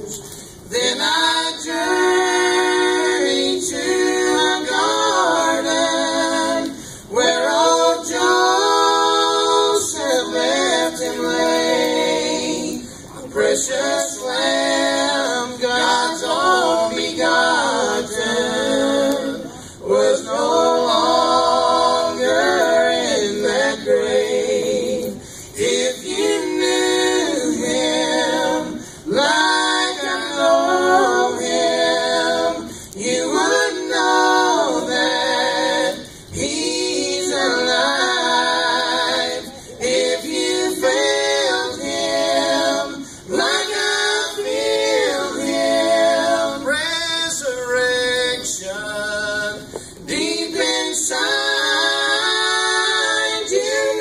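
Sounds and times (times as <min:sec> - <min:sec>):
group singing gospel song: 0:00.0 - 0:54.0.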